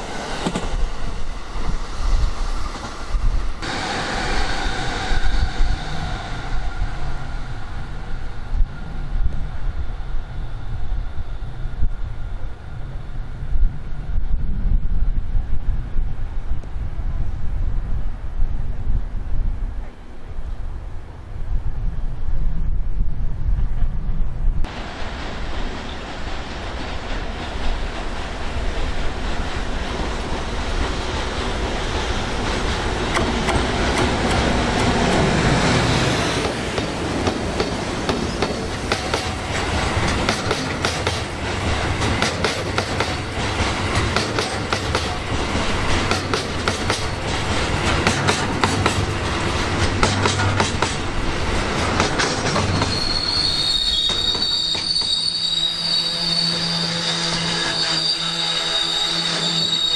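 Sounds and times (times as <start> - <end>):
train wheels squealing on rails: 0.0 - 14.2, 37.6 - 41.3, 46.1 - 47.4, 52.1 - 59.9
train wheels rumbling on rails: 0.0 - 20.6, 22.8 - 59.9.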